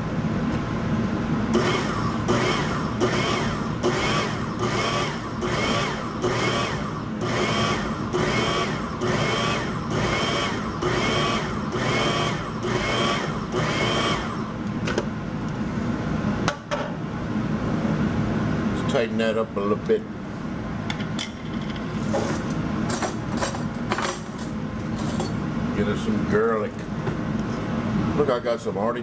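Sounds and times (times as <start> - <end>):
food processor pulsing: 1.5 - 14.6.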